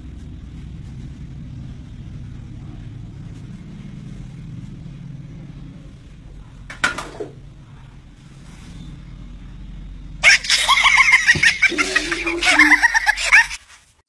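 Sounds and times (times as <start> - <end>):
low rumbling hum: 0.0 - 6.7.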